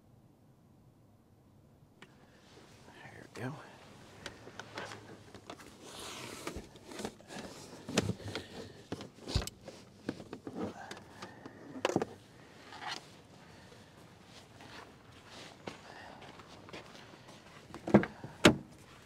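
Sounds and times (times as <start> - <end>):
gear being handled in a car: 3.8 - 19.0.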